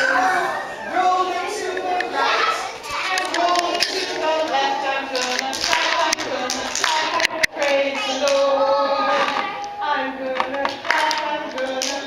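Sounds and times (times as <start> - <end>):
children singing: 0.0 - 12.0
hand claps: 3.1 - 8.5, 10.4 - 12.0.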